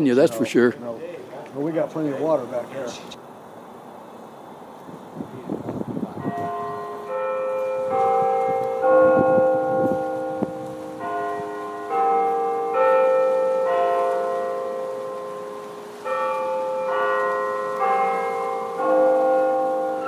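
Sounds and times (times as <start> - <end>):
tower bells chiming: 6.2 - 20.0.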